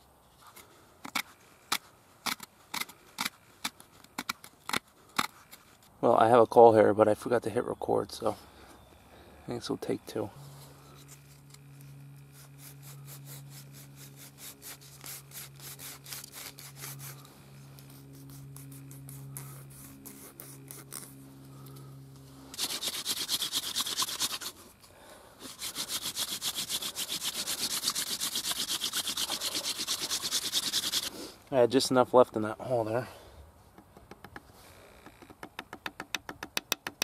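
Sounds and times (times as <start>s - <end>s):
wooden spindle rubbing: 10.4s - 21.2s, 22.5s - 24.8s, 25.4s - 31.2s.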